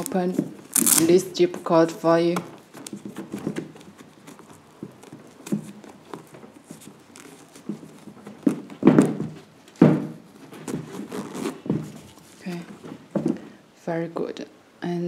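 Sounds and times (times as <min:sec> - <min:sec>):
zipper clicks and handling: 0:00.0 - 0:01.2, 0:10.8 - 0:12.2
rubbing noises: 0:00.0 - 0:13.2.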